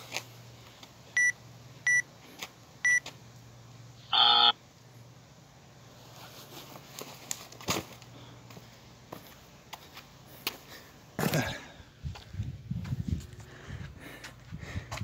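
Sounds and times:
long timer beep: 1.2s - 2.0s.

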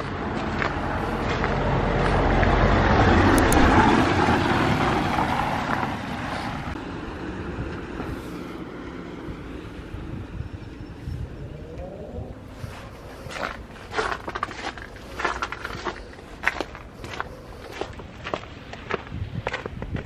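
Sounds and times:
car driving past on wet street: 0.1s - 9.9s.

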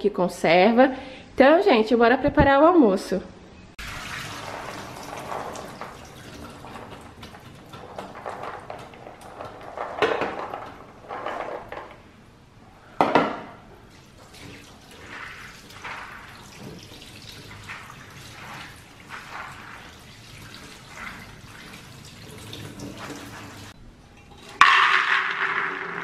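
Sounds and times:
water pouring into a pan: 3.8s - 9.8s, 13.9s - 23.8s
kitchenware knocks: 13.0s - 13.6s.

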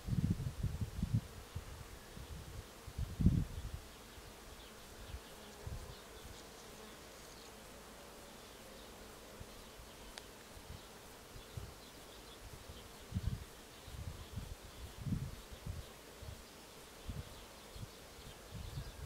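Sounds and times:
wind buffeting microphone: 0.0s - 3.9s, 12.4s - 16.4s, 17.0s - 19.0s
faint buzzing drone: 0.0s - 19.0s.

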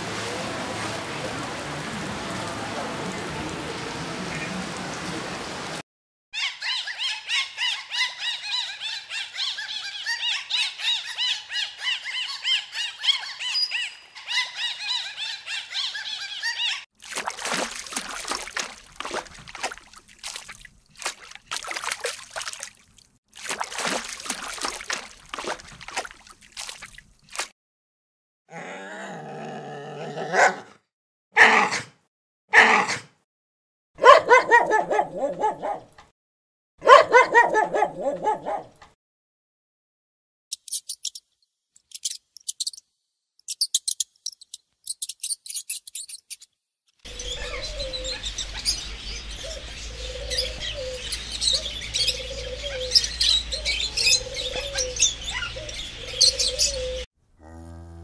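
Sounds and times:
dog barking and yapping: 30.2s - 30.8s, 34.0s - 35.9s, 36.8s - 38.8s
dolphins chirping and clicking: 40.5s - 42.8s, 43.4s - 46.5s.

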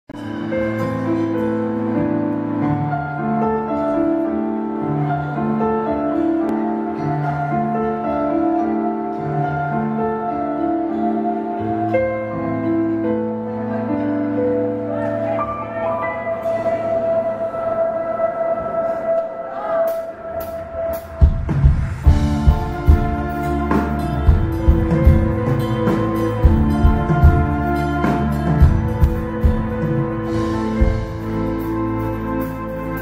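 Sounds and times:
keyboard chords: 0.1s - 33.0s.

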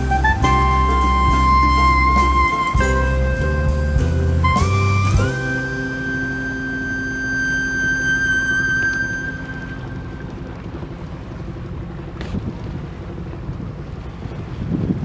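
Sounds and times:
jazz music: 0.0s - 11.0s
water washing around boat: 0.0s - 15.0s
wind buffeting microphone: 9.4s - 15.0s.

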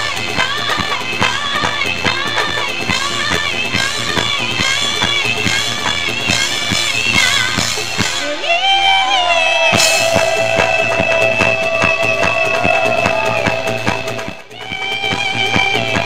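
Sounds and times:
drum kit beat: 0.0s - 8.4s, 9.6s - 16.0s
live band music: 0.0s - 8.8s, 9.4s - 16.0s
cymbal crash: 9.7s - 12.2s.

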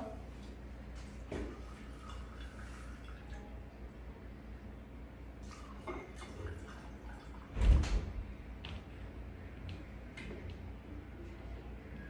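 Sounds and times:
liquid pouring into glasses: 5.4s - 7.6s.

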